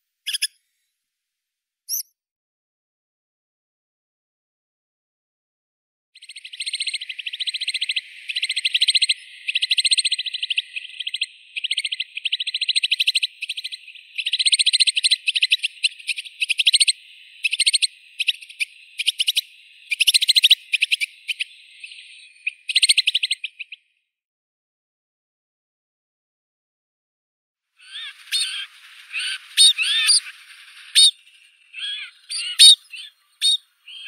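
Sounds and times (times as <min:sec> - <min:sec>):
bird chattering trills: 0:00.3 - 0:00.5, 0:06.2 - 0:23.8, 0:27.8 - 0:34.0.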